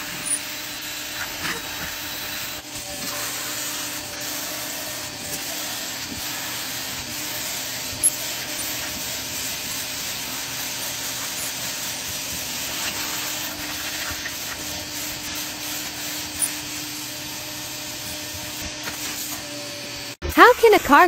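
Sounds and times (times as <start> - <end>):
tool head rubbing on fabric: 3.0 - 19.4.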